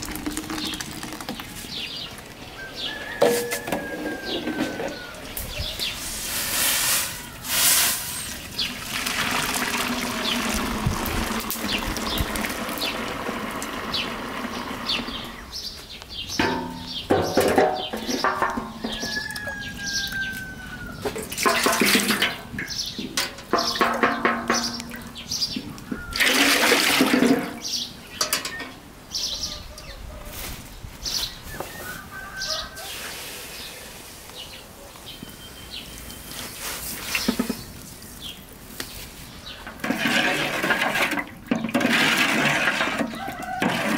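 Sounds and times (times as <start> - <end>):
running water: 0.0 - 2.6, 5.9 - 15.4
birds chirping: 0.0 - 7.4, 8.0 - 21.4, 22.0 - 26.4, 27.2 - 39.8
clattering knocks: 16.4 - 19.2.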